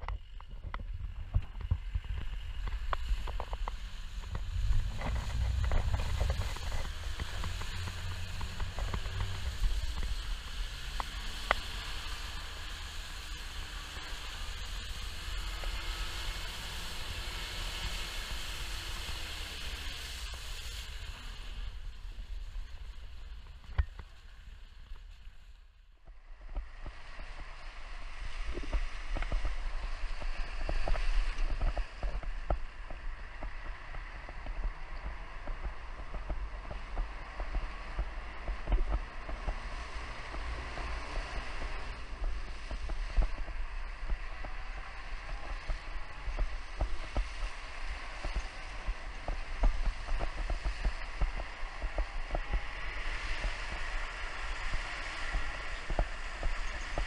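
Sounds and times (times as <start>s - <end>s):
gravel and suspension knocks: 0.0s - 11.6s
wind rumbling on microphone: 0.0s - 57.0s.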